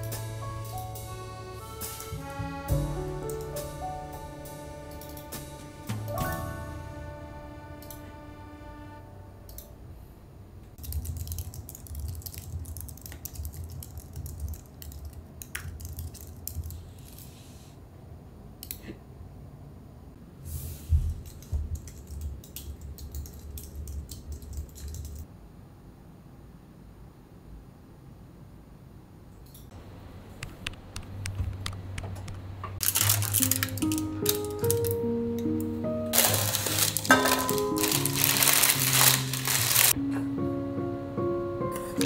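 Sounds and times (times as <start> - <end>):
faint musical tail: 0.0 - 10.0
keyboard typing clicks: 21.3 - 25.2.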